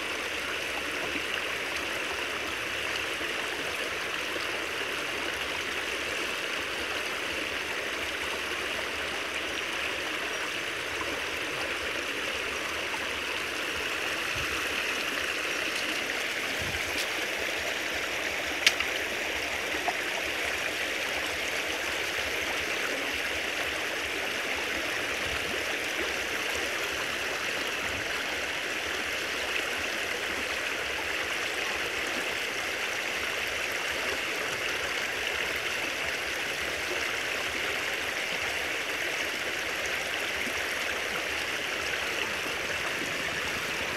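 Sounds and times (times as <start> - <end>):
creek water rushing and splashing: 0.0 - 43.9.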